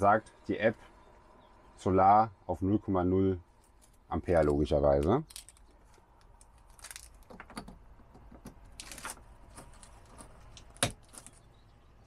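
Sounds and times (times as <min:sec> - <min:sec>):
cable handling clicks and rustles: 0:03.6 - 0:11.5.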